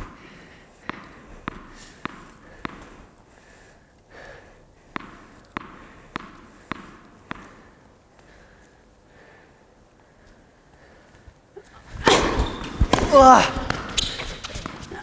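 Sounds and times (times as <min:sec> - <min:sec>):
tennis ball bouncing on hard court: 0:00.8 - 0:03.1, 0:04.9 - 0:07.8, 0:12.0 - 0:15.0.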